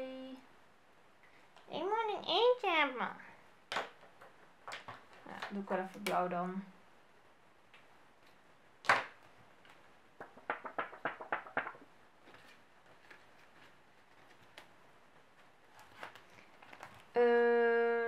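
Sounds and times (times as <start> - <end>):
plastic pouches rustling: 15.4 - 17.2.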